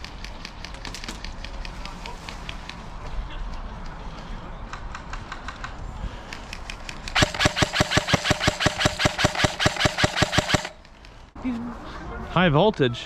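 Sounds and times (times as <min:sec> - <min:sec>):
airsoft rifle full-auto burst: 0:07.2 - 0:10.8.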